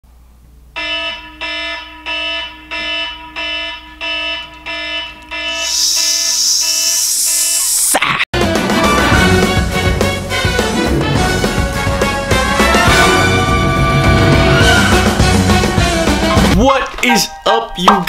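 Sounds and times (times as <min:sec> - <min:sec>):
alarm beeping: 0:00.8 - 0:07.9
loud hiss: 0:05.6 - 0:08.0
music: 0:08.4 - 0:18.0.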